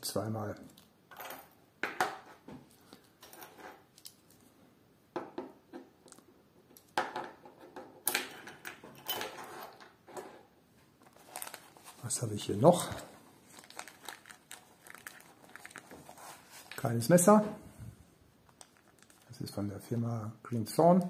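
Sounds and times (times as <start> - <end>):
metal items clinking and clicking: 8.1 - 10.3
soft rustling: 10.8 - 19.4.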